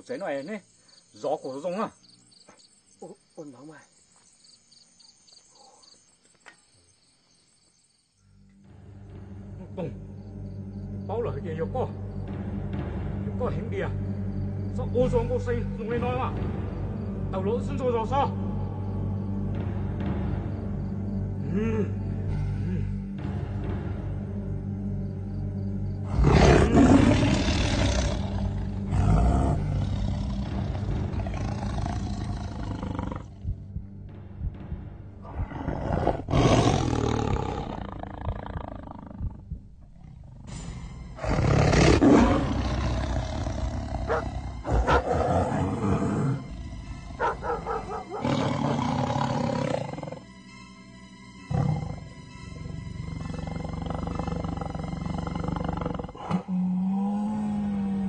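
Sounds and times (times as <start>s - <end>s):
dramatic film music: 8.3s - 58.0s
large animal roaring: 26.1s - 33.4s, 35.2s - 40.5s, 41.2s - 50.2s, 51.5s - 58.0s.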